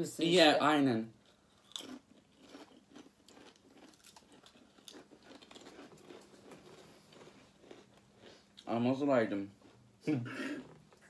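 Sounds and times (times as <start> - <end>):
crisps crunching being chewed: 1.2 - 8.8.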